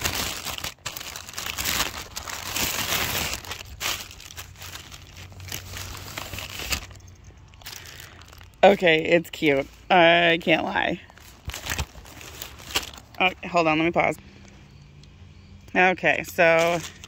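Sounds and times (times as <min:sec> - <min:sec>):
plastic packaging crinkling: 0:00.0 - 0:09.7, 0:10.6 - 0:13.6, 0:16.5 - 0:17.0.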